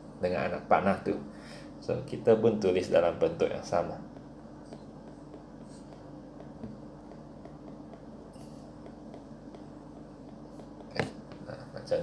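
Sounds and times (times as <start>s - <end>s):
low electrical hum: 0.0s - 12.0s
stylus tapping on tablet screen: 4.1s - 11.5s.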